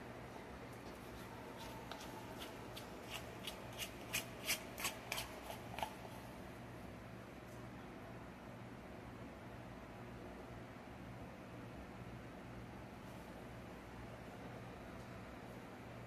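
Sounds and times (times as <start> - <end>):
utensil scraping mixing bowl: 0.9 - 6.2.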